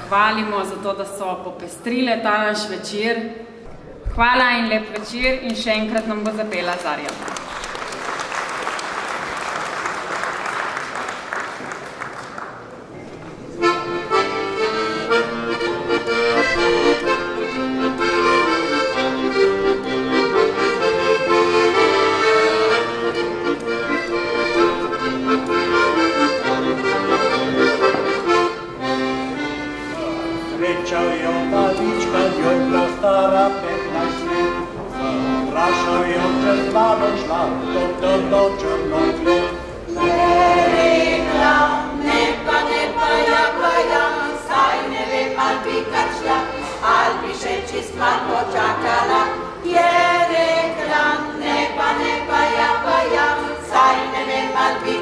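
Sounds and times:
applause: 0:06.2 - 0:12.8
accordion playing folk tune: 0:13.5 - 0:55.0.

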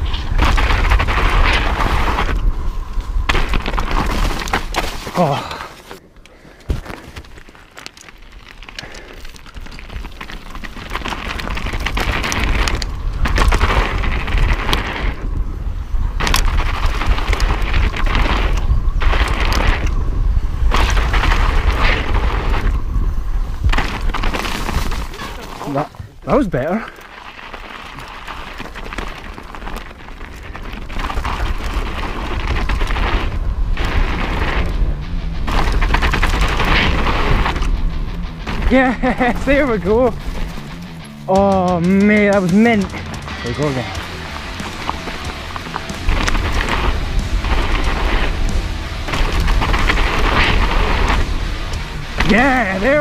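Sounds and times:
wind rumbling on microphone: 0:00.0 - 0:41.2, 0:42.4 - 0:53.0
bike tyres rolling over dirt: 0:00.0 - 0:53.0
wind buffeting microphone: 0:08.9 - 0:25.2.

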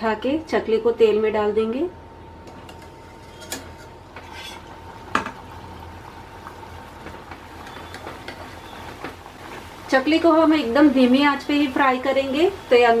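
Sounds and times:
oil frying hiss: 0:02.6 - 0:13.0.

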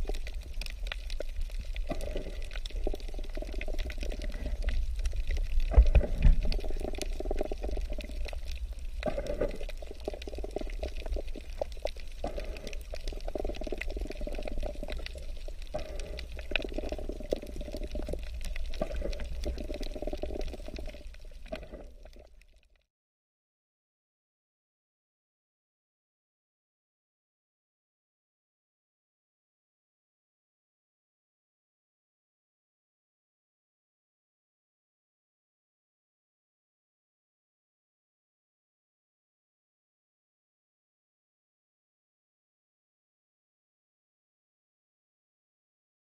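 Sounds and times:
water sloshing and gurgling: 0:00.0 - 0:22.8
crackling clicks underwater: 0:00.0 - 0:22.9.

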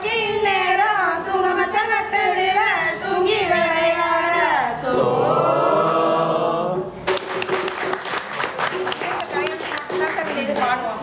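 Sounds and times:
women singing unaccompanied: 0:00.0 - 0:05.5
quick hand claps: 0:07.1 - 0:10.8.

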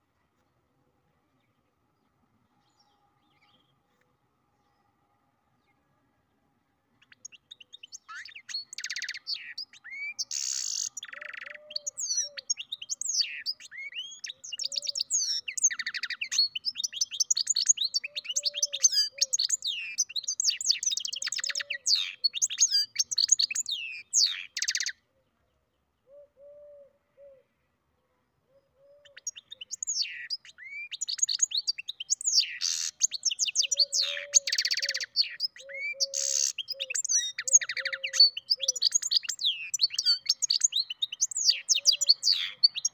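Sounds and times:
finch singing twittering song: 0:07.0 - 0:25.0, 0:28.9 - 0:42.9.

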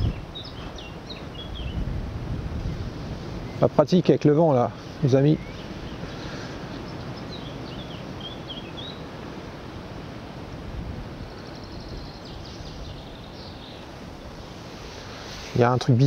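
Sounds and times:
small bird chirping: 0:00.0 - 0:01.8, 0:05.3 - 0:09.1, 0:11.2 - 0:14.6
wind rushing: 0:00.0 - 0:03.8.

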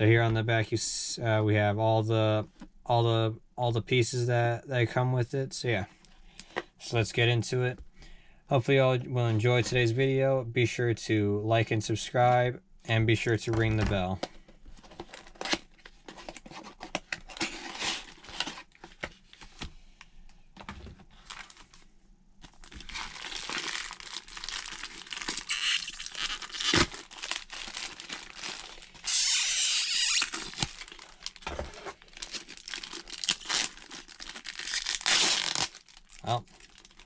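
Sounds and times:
cardboard packaging handled: 0:14.7 - 0:19.7, 0:20.6 - 0:21.8, 0:22.4 - 0:37.0
plastic bag crinkling: 0:22.4 - 0:37.0
cardboard tearing: 0:22.8 - 0:35.9.

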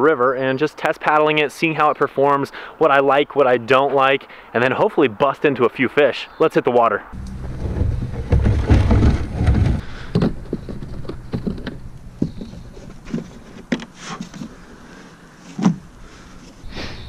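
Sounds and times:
low rumble: 0:07.2 - 0:13.1
gear knocking on plastic kayak: 0:07.2 - 0:14.5.

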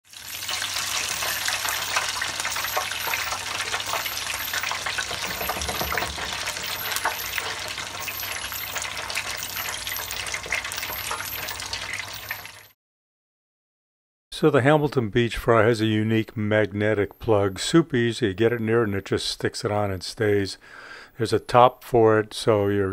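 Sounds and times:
food deep-frying in hot oil: 0:00.0 - 0:12.8.

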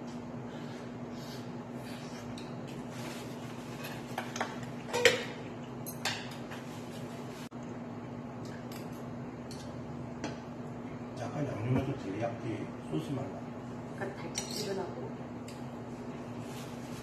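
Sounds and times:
low room hum: 0:00.0 - 0:17.0
metal chopsticks clinking on plates: 0:14.3 - 0:14.8.

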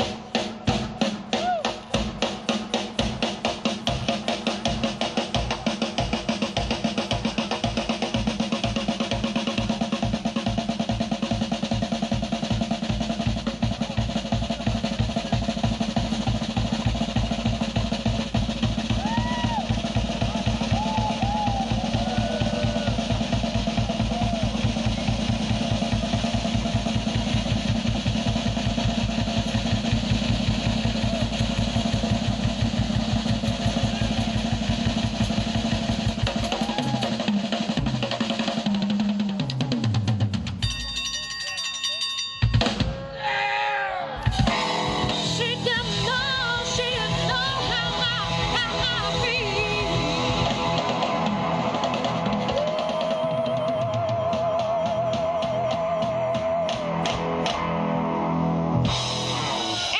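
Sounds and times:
bass drum strokes: 0:00.0 - 0:38.2.

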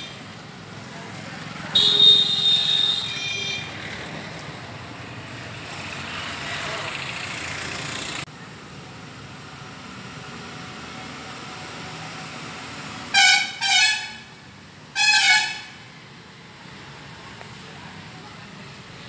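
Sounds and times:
horn honking: 0:01.7 - 0:03.8, 0:13.1 - 0:14.3, 0:14.9 - 0:15.8.

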